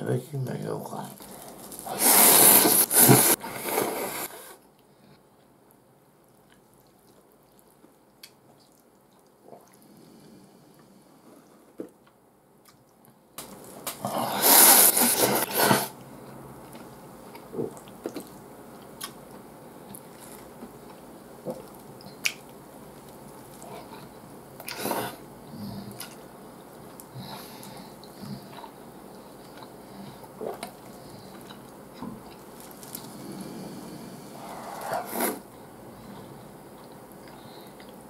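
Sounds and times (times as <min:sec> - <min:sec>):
man slurping noodles: 0:01.8 - 0:04.6, 0:14.0 - 0:16.0, 0:34.4 - 0:35.4
soft chewing: 0:04.8 - 0:38.0.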